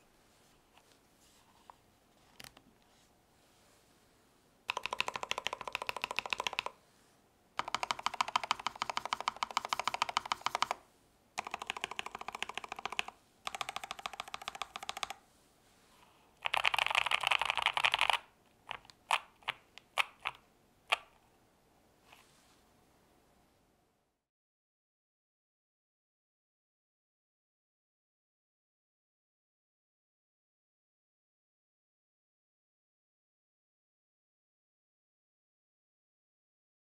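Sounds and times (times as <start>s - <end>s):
fast typing on mechanical keyboard: 4.7s - 6.8s, 7.6s - 10.8s, 11.4s - 15.2s, 16.4s - 21.0s.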